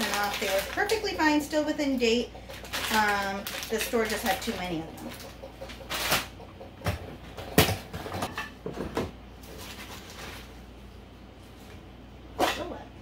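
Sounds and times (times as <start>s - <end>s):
plastic salad spinner clattering: 0.0s - 6.4s.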